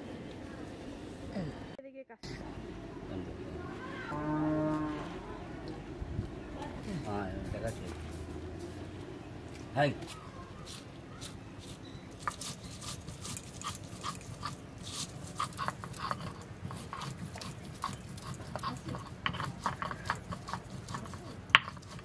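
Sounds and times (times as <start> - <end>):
stone roller grinding on stone: 11.6 - 22.0.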